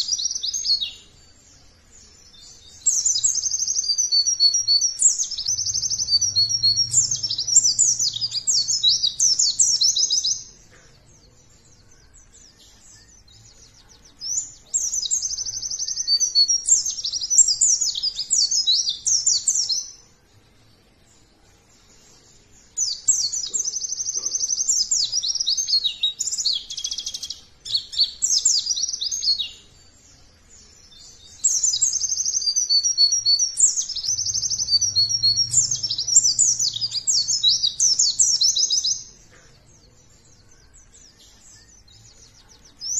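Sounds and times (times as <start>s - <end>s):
bird twittering song: 0.0s - 42.9s.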